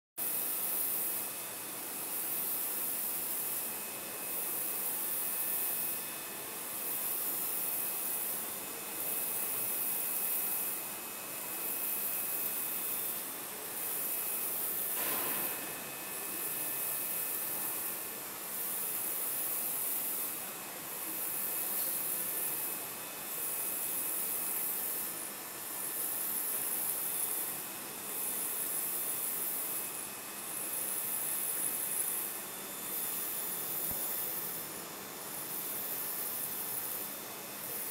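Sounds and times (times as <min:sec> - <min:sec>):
printer running with high hiss: 0:00.2 - 0:37.9.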